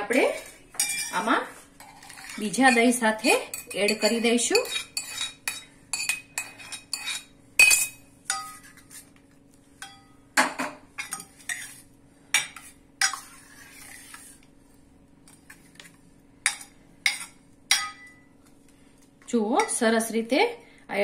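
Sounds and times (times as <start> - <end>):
faint steady hum: 0.0 - 21.0
spoon clinking and scraping cookware: 0.3 - 9.0, 9.8 - 10.1, 12.4 - 13.9.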